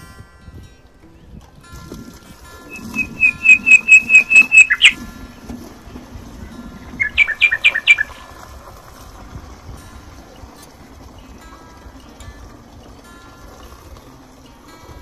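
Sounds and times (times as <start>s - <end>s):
low steady hum: 0.0s - 15.0s
bird chirping: 2.6s - 5.0s, 6.9s - 8.3s.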